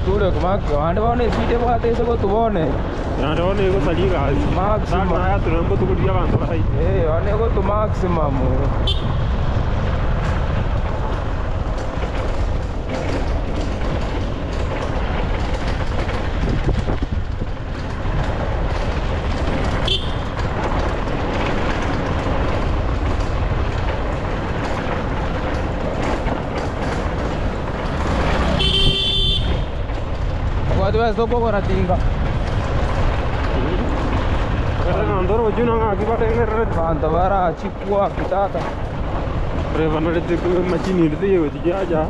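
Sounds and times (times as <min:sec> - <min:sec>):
vehicle road noise rumble: 0:00.0 - 0:42.0
short horn toot: 0:28.5 - 0:29.6.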